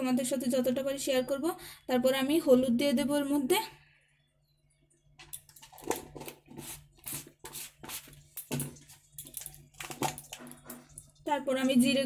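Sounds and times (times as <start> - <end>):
plastic spoon scraping and tapping: 5.2 - 11.1.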